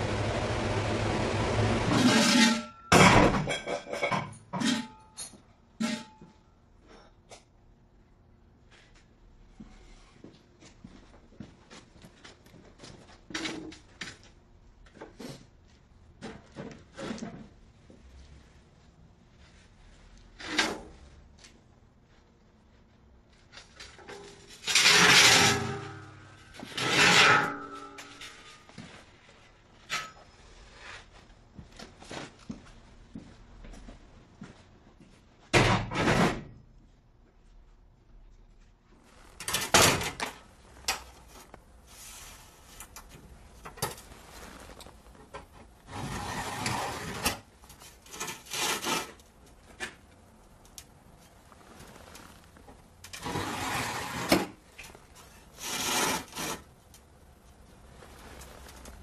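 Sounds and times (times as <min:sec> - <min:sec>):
scraping rubbing strokes: 0:48.0 - 0:49.2, 0:53.2 - 0:54.5, 0:55.2 - 0:56.7.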